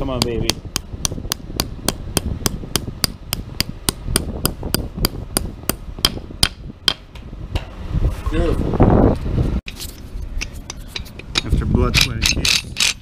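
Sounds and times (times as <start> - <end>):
hammer striking metal: 10.4 - 13.0.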